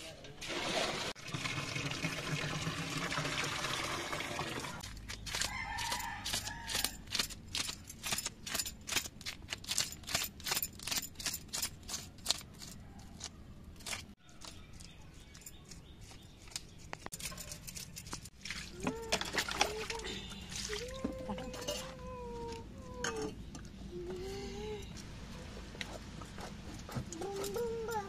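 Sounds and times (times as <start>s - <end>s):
water pouring into plastic bucket: 0.4s - 4.8s.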